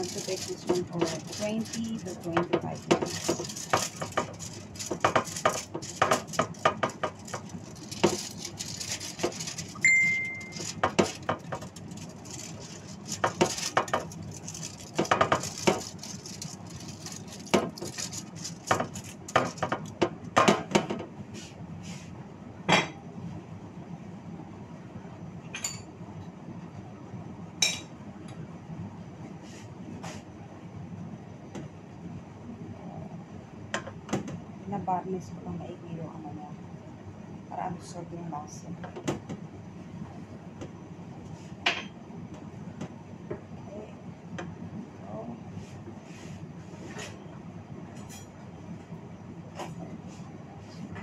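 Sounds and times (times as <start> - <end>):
aluminium foil crinkling: 0.0 - 20.0
utensils and dishes clinking: 0.0 - 20.0
short high tone: 9.8 - 10.5.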